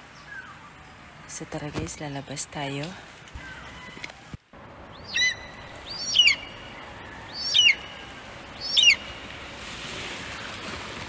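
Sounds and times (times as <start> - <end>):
steady background hiss: 0.0 - 11.0
bird whistled call: 5.0 - 6.7, 7.3 - 9.1.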